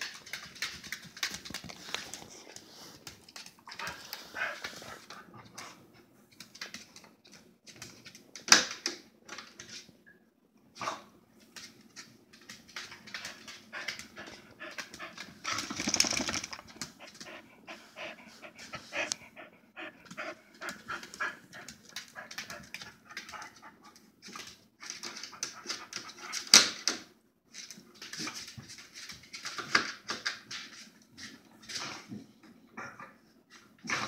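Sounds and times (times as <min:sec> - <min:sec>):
dog panting and sniffing: 0:00.0 - 0:06.5, 0:13.0 - 0:26.6
dog claws clicking on tile: 0:00.0 - 0:09.9, 0:11.4 - 0:17.3, 0:20.1 - 0:31.8.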